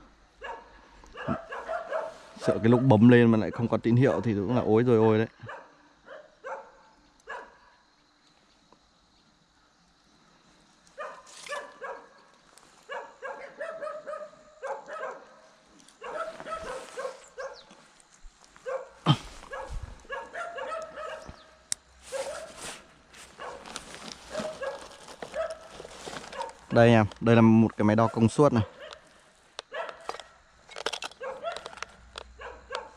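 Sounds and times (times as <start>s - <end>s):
dog barking: 0.4s - 4.7s, 5.4s - 7.7s, 11.0s - 12.2s, 12.9s - 17.7s, 18.6s - 21.5s, 22.1s - 22.6s, 23.3s - 25.7s, 26.3s - 26.7s, 27.9s - 29.1s, 29.7s - 30.4s, 31.2s - 31.8s, 32.4s - 32.9s.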